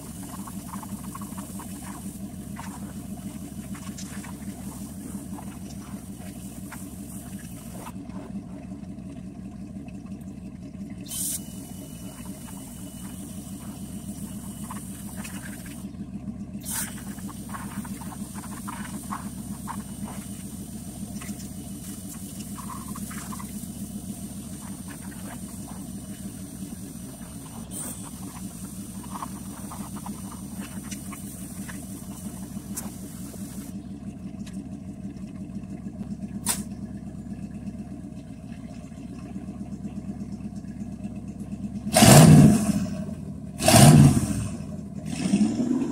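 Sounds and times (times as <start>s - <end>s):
pressure washer humming: 0.0s - 38.1s
water jet hissing on metal: 16.6s - 33.7s.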